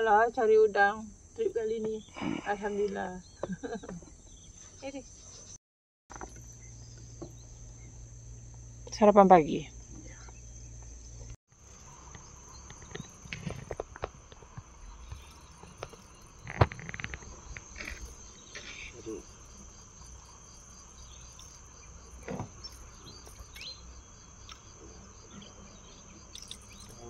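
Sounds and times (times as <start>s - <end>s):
high-pitched insect chorus: 0.0s - 27.0s.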